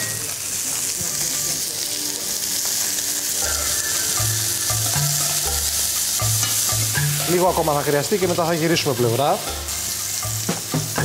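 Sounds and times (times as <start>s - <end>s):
chicken sizzling in frying pan: 0.0s - 11.0s.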